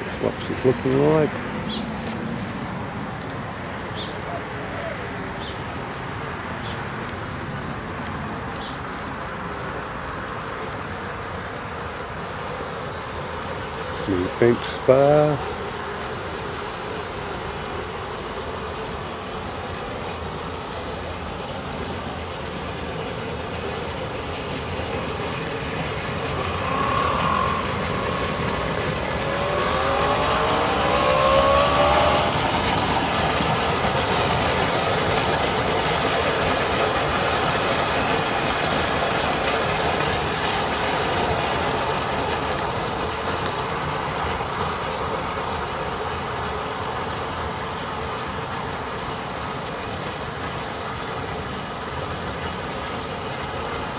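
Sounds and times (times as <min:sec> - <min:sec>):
pump hum: 0:00.0 - 0:53.9
spa jets bubbling water: 0:00.0 - 0:53.9
short wavering tones: 0:25.4 - 0:32.7.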